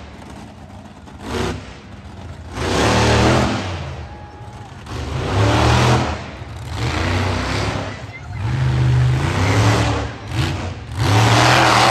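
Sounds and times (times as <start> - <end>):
monster truck engine revving: 0.0 - 11.9.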